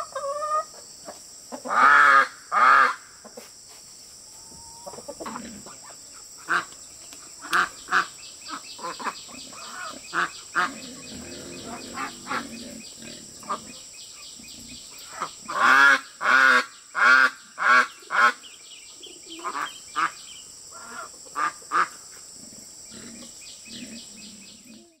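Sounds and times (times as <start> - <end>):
ducks quacking: 4.8 - 6.7, 7.4 - 13.8, 15.0 - 18.5, 19.4 - 22.0.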